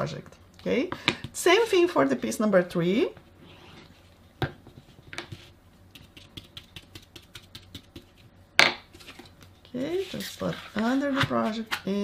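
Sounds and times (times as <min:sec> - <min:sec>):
glue brush tapping and scratching: 0:05.2 - 0:08.2.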